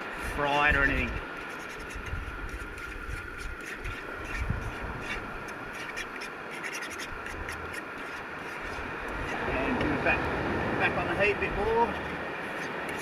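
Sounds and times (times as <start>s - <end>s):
fork scraping a frying pan: 0.0s - 9.4s, 12.4s - 13.0s.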